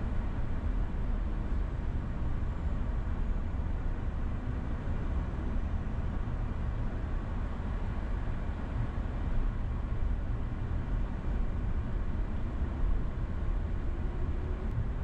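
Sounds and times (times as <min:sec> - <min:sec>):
car road noise on freeway: 0:00.0 - 0:15.0.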